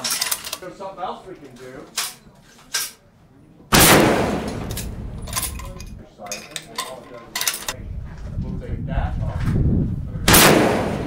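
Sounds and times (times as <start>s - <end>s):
rifle shot with echo: 3.7s - 5.8s, 10.3s - 11.0s
rifle bolt clicking: 4.4s - 7.8s.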